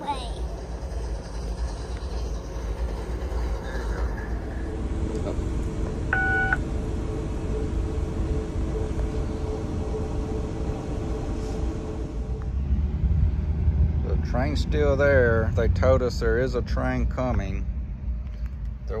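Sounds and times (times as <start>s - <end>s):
diesel locomotive idling: 0.0s - 19.0s
short electronic beep: 6.1s - 6.6s.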